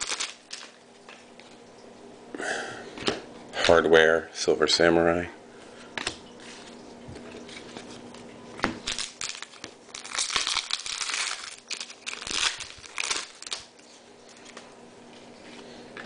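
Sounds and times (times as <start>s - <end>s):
foil wrapper crinkling: 0.0s - 1.2s, 6.6s - 14.7s.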